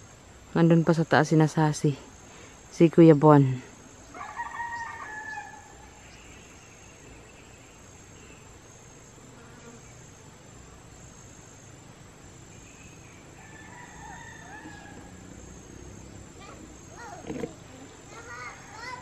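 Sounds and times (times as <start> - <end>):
high-pitched insect drone: 3.7 - 19.0
rooster crowing: 4.1 - 6.0, 13.3 - 15.4
faint animal calls: 12.6 - 19.0.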